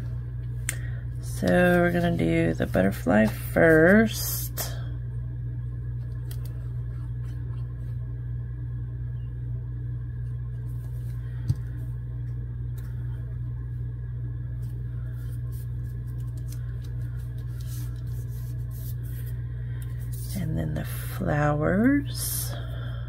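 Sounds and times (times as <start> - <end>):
low hum: 0.0 - 23.0
paper rustling: 1.4 - 4.3, 14.6 - 20.3.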